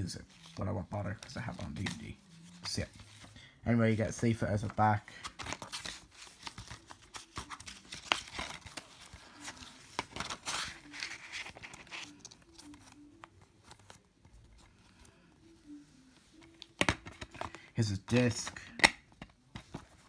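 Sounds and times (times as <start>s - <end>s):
paper leaflet rustling: 0.2s - 15.1s.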